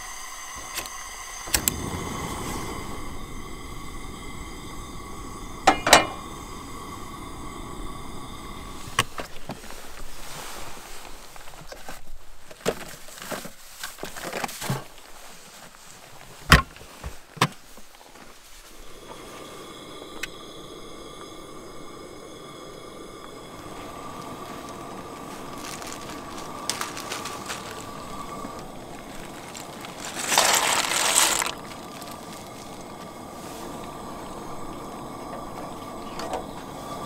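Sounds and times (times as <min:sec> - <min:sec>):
faint high hum: 0:00.0 - 0:09.4, 0:18.7 - 0:37.0
containers clicking and rustling: 0:28.5 - 0:32.7.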